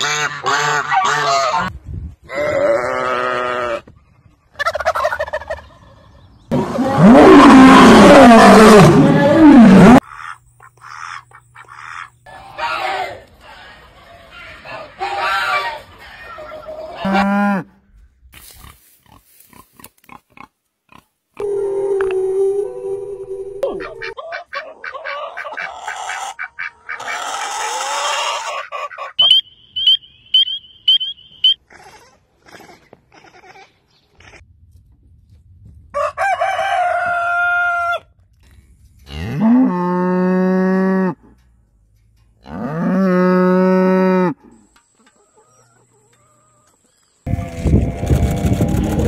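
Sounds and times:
rooster crowing: 35.9 - 38.1
cow mooing: 42.4 - 44.4.

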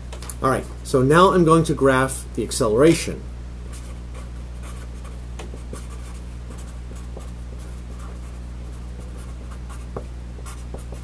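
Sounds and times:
steady low hum: 0.0 - 11.0
marker writing on paper: 3.7 - 11.0.

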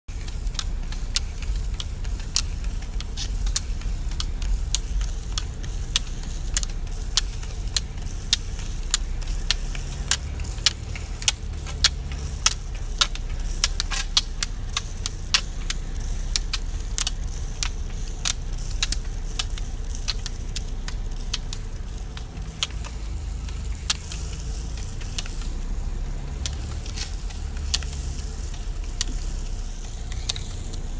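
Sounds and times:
car rumbling slowly: 0.0 - 30.9
ski pole tips clicking on asphalt: 0.1 - 30.9.

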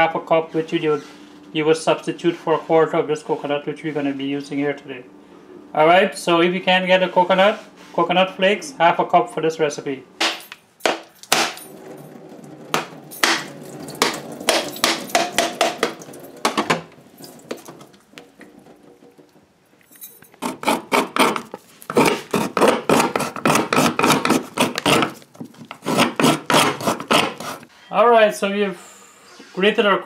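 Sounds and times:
coconut cracking knocks: 10.2 - 11.6
coconut being grated: 12.7 - 16.6, 20.4 - 27.7.

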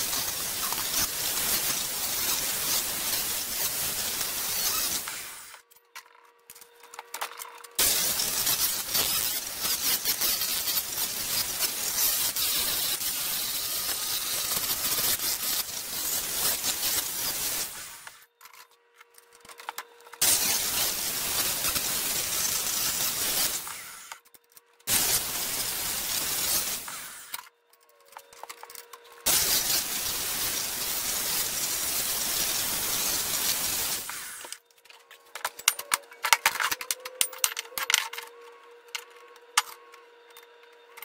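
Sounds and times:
power tool grinding: 0.0 - 5.6, 7.8 - 18.2, 20.2 - 24.2, 24.9 - 27.4, 29.2 - 34.6.

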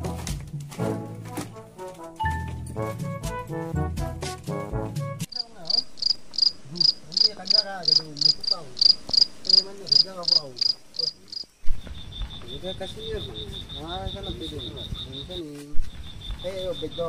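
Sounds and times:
music: 0.0 - 5.3
crickets chirping: 5.3 - 17.0
fast cricket trill: 5.3 - 17.0.

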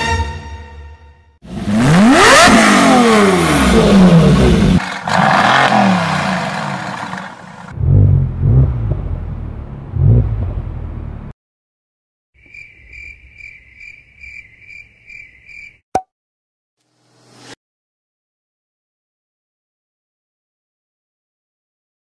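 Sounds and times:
low engine revs: 1.4 - 11.3.

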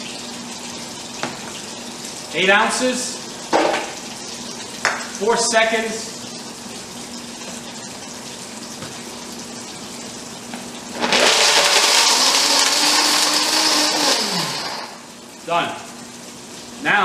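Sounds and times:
blender humming low: 10.5 - 15.2
blender grinding chocolate: 10.9 - 15.0.

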